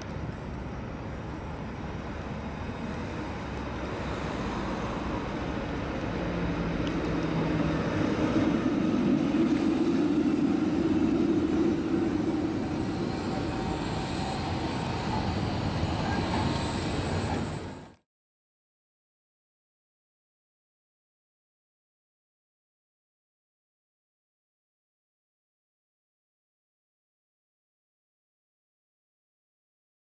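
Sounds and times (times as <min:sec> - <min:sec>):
tram motor hum: 0:00.0 - 0:18.0
tram wheels rumbling on rails: 0:00.0 - 0:18.0.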